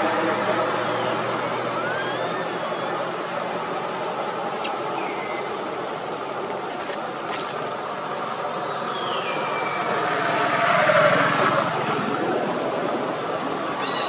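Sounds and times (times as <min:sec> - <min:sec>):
rumble of passing traffic: 0:00.0 - 0:14.0
faint falling whistles: 0:00.9 - 0:03.1.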